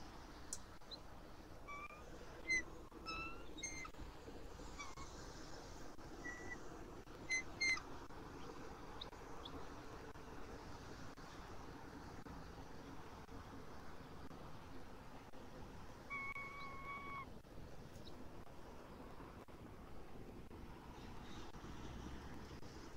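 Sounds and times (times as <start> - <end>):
eagles chirping: 1.6 - 4.0, 6.2 - 6.6, 7.2 - 9.6, 16.1 - 17.3.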